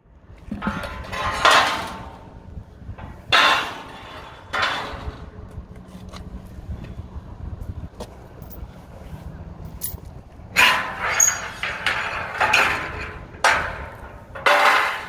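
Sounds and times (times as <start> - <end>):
steel ramps clanking: 0.4 - 6.1, 9.7 - 15.0.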